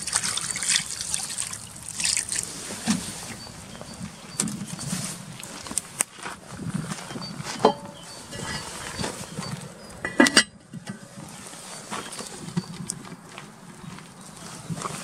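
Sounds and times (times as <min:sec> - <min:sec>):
metal lid clattering on pot: 0:07.6 - 0:08.8, 0:10.0 - 0:11.1.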